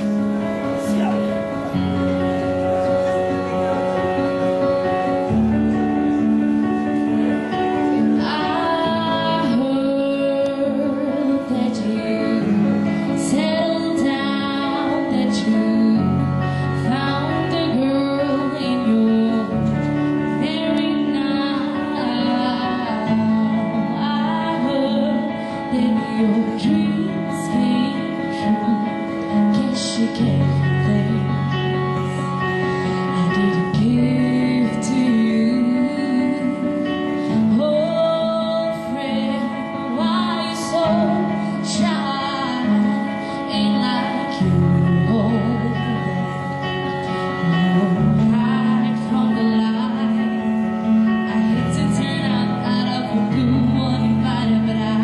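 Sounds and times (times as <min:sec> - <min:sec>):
electronic keyboard chords: 0:00.0 - 0:55.0
woman singing pop ballad: 0:07.5 - 0:55.0.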